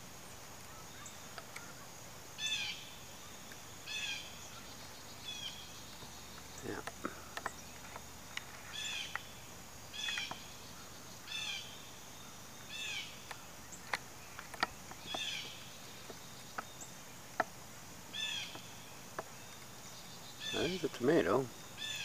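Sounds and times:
faint sharp clicks: 1.3s - 1.8s, 5.9s - 9.3s, 13.2s - 17.6s.

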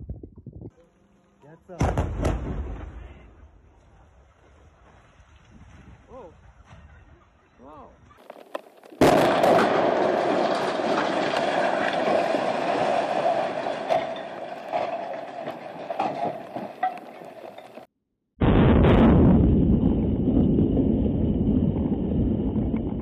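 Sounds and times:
loud explosive bang: 1.8s - 3.4s, 18.4s - 23.0s
concrete cracking and debris falling: 8.2s - 17.9s
rumbling crash of collapsing tower: 9.0s - 17.8s, 18.4s - 23.0s.

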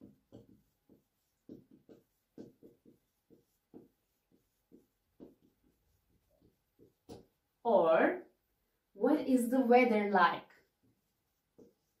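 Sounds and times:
marker scratching on whiteboard: 0.0s - 7.5s, 10.4s - 12.0s.

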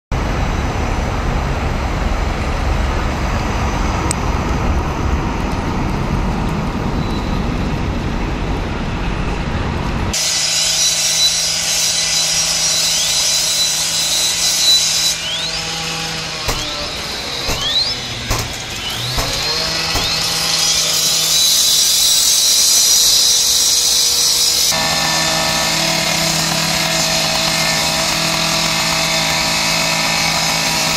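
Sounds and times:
fire engine low rumble: 0.1s - 10.2s
short rising squeaks: 6.9s - 7.8s, 12.5s - 22.1s.

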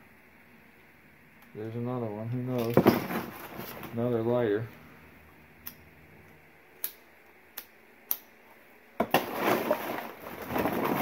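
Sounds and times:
hands rummaging through box: 9.0s - 11.0s.

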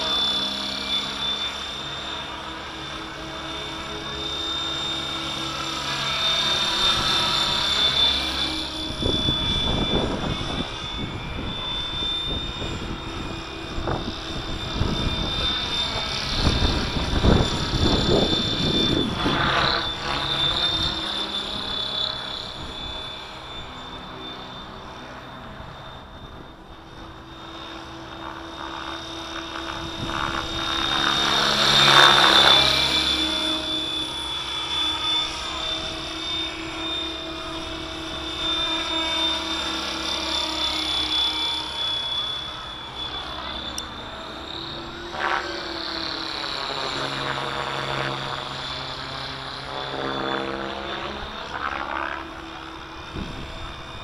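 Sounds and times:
rc helicopter motor whine: 0.0s - 54.0s.

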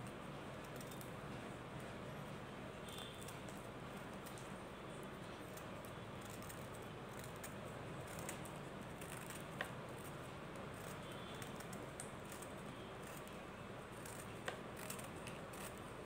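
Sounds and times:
scissors scraping and snipping: 0.0s - 2.0s, 5.2s - 16.0s.

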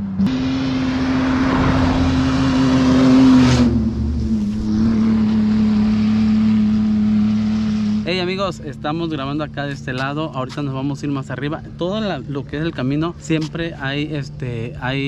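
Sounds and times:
race car engine passing by: 0.0s - 8.1s.

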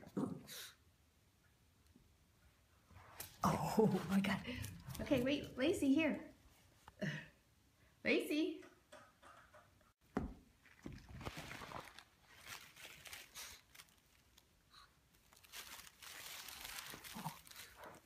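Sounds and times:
tissue paper crinkling: 10.6s - 18.0s.

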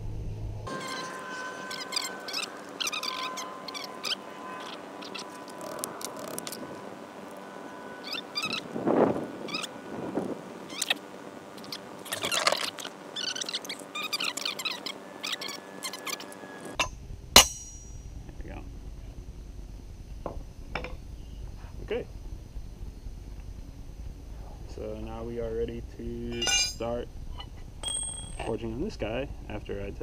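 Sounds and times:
faint steady hum: 0.0s - 30.0s
birds chirping: 0.7s - 16.8s.

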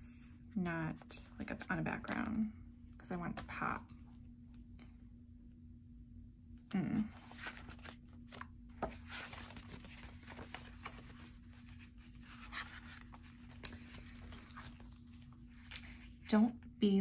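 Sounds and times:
faint steady hum: 0.0s - 17.0s
paper sheets rustling: 7.1s - 16.2s.

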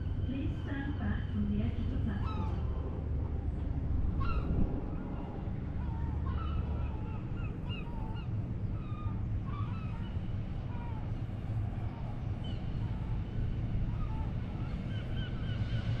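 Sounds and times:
steady low rumble: 0.0s - 16.0s
birds honking and squawking: 1.8s - 2.8s, 4.2s - 15.9s.

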